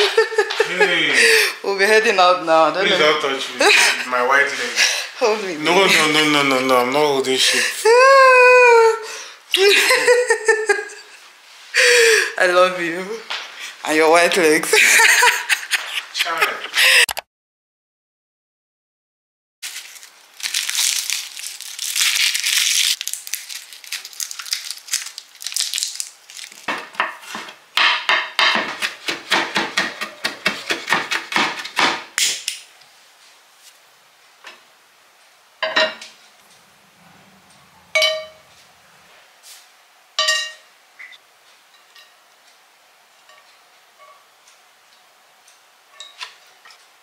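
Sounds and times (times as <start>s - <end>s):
knife chopping on wooden board: 26.7s - 32.1s.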